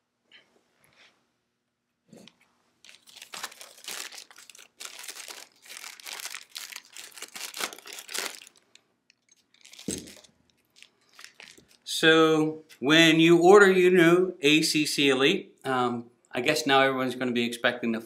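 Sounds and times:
plastic bag crinkling: 2.8s - 11.9s.

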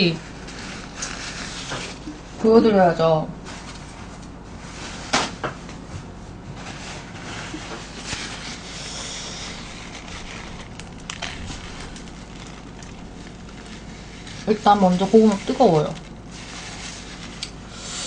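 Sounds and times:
paper towel ripping: 0.0s - 2.0s, 7.0s - 17.7s
paper rustling and crinkling: 0.2s - 2.1s, 6.7s - 17.6s.

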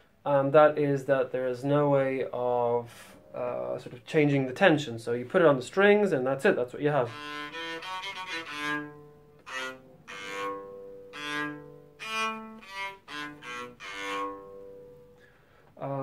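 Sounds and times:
bowed cello notes: 6.2s - 15.4s.

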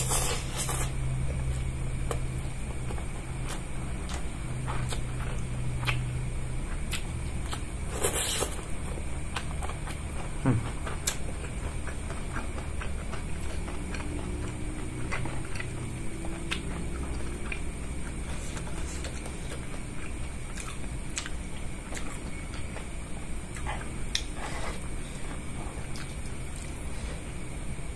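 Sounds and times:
low hum: 0.0s - 27.9s
man chewing food: 0.0s - 27.9s.

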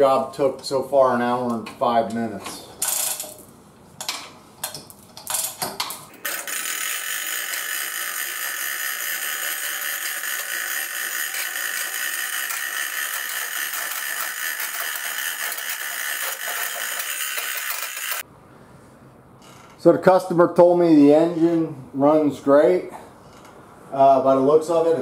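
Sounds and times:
hoist chain clinking and rattling: 6.3s - 18.2s.

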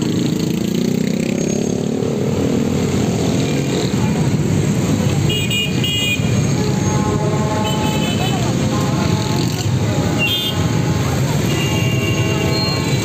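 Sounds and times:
motorcycles and cars engines: 0.0s - 13.0s
horn toots: 5.2s - 13.0s.

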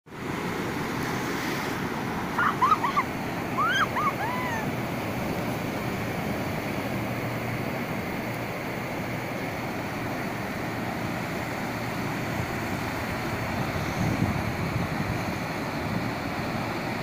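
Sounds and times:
waves breaking on sandy beach: 0.1s - 17.0s
short high cries: 2.4s - 4.7s.

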